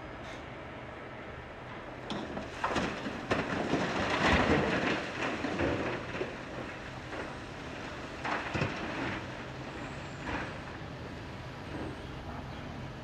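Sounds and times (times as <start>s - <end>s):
rock pouring into metal trailer: 2.4s - 9.5s.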